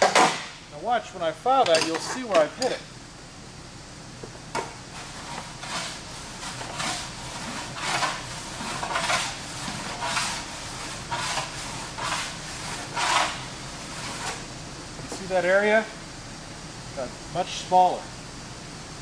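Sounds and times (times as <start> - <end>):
file rasping on metal: 4.9 - 14.5.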